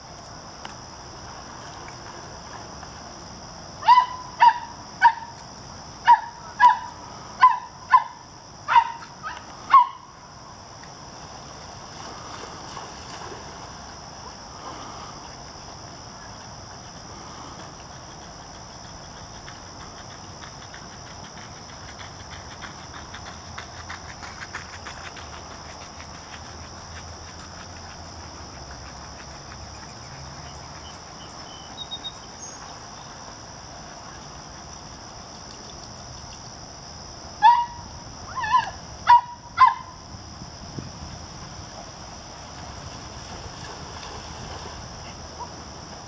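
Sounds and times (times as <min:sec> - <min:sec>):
insects droning: 0:00.0 - 0:46.0
dog barking: 0:06.1 - 0:10.0.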